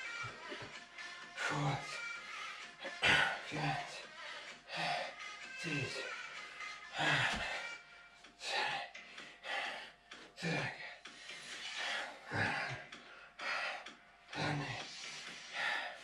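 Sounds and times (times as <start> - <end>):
man's sharp forceful breaths: 0.0 - 16.0.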